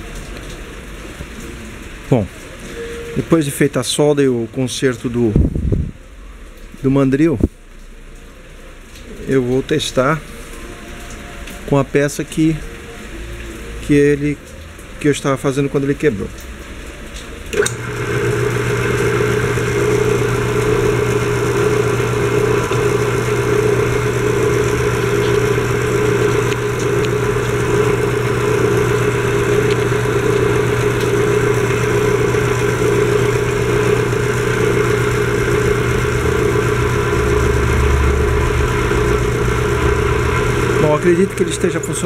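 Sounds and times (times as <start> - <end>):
wood lathe motor humming: 17.6 - 42.0.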